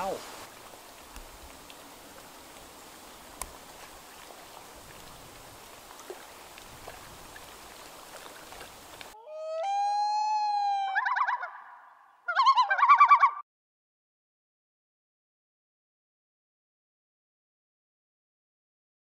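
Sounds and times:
faint background hiss: 0.0 - 9.2
loon call: 9.2 - 13.4.

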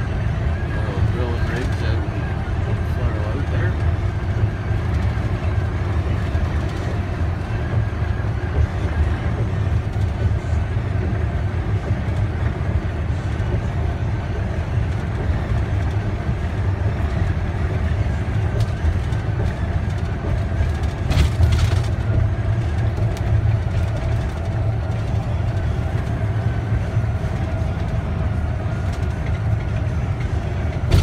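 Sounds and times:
car road and engine noise: 0.0 - 31.0.

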